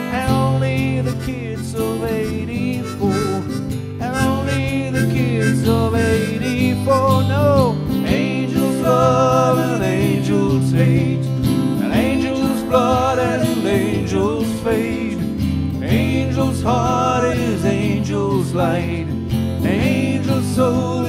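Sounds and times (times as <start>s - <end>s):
acoustic guitar: 0.0s - 21.0s
gliding melody line: 1.2s - 7.2s.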